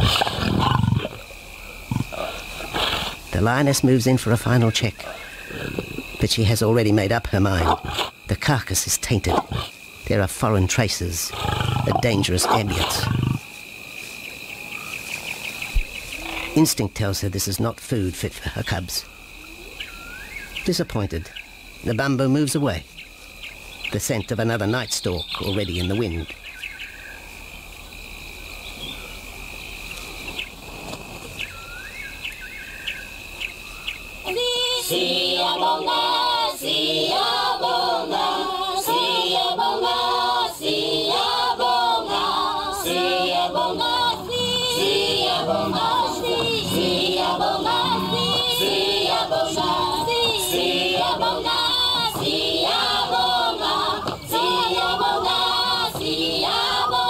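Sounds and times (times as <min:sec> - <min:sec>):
choir singing in music: 0:34.3 - 0:57.0
short rising calls: 0:41.1 - 0:57.0.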